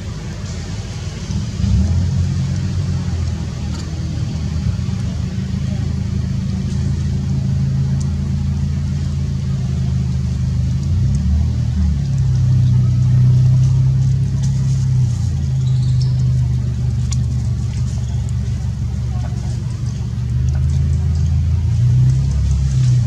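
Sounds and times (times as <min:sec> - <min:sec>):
low engine hum: 0:00.0 - 0:23.0
faint high chirp: 0:15.4 - 0:16.4.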